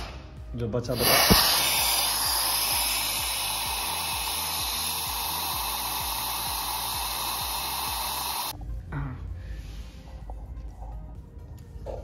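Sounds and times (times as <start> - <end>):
compressed air hissing: 0.9 - 8.6.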